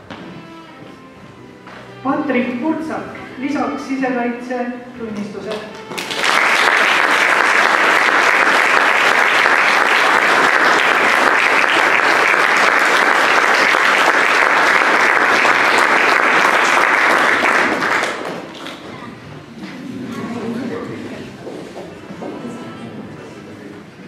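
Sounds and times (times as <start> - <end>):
audience applauding: 5.7 - 18.9.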